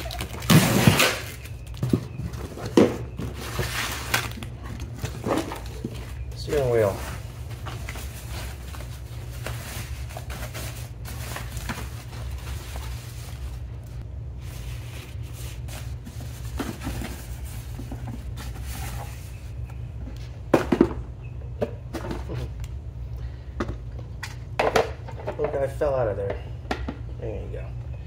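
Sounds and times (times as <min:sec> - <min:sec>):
plastic wrap and cardboard rustling: 0:00.0 - 0:19.6
steady low hum: 0:00.0 - 0:28.0.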